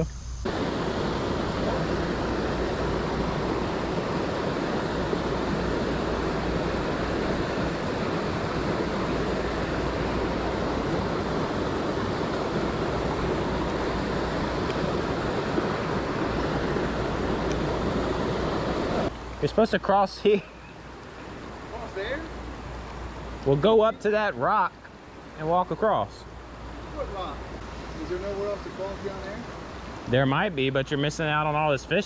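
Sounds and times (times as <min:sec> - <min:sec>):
water rushing over boulders: 0:00.5 - 0:25.7.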